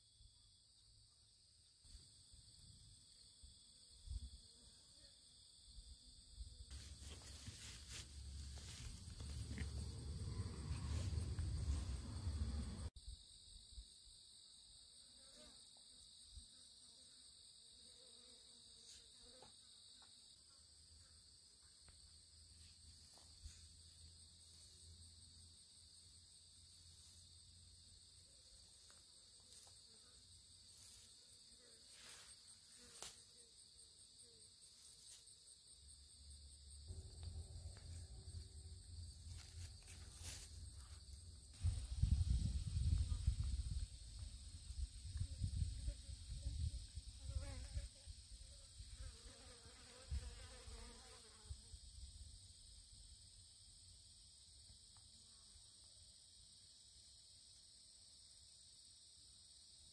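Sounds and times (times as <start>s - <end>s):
insects chirring: 0.0s - 59.9s
low rumble: 8.2s - 12.9s, 36.9s - 39.6s.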